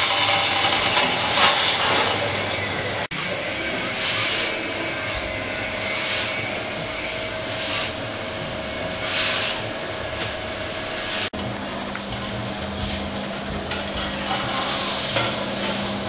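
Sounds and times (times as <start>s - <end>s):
coffee roaster running: 0.0s - 16.0s
hissing gas burner: 0.0s - 16.0s.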